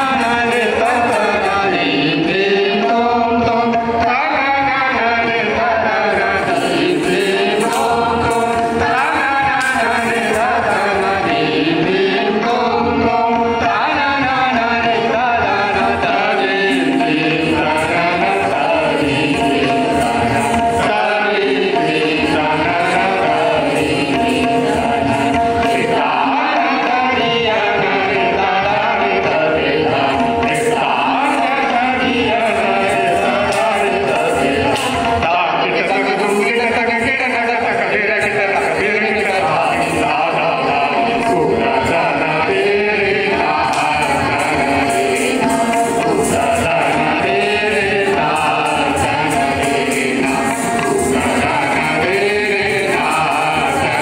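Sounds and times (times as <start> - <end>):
harmonium drone: 0.0 - 54.0
people singing classical vocals: 0.0 - 54.0
percussion strokes: 0.0 - 54.0.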